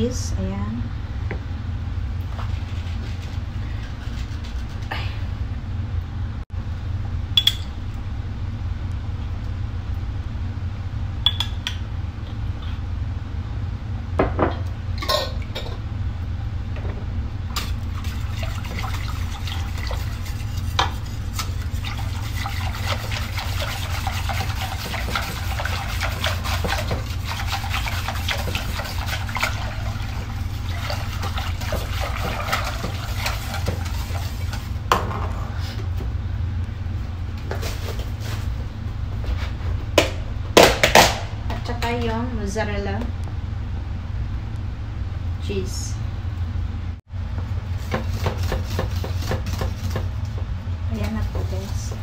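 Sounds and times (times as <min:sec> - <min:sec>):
constant low hum: 0:00.0 - 0:52.0
whisk stirring thick sauce: 0:17.8 - 0:34.8, 0:47.8 - 0:50.1.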